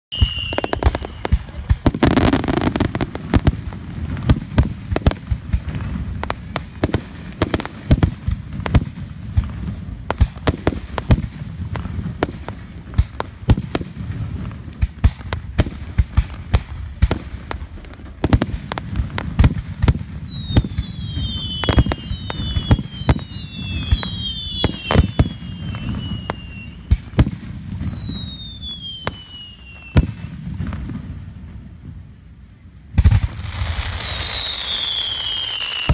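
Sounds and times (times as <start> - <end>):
falling firework whistles: 0.1 - 3.0, 19.1 - 30.9, 33.0 - 35.9
fireworks bursting: 0.1 - 35.9.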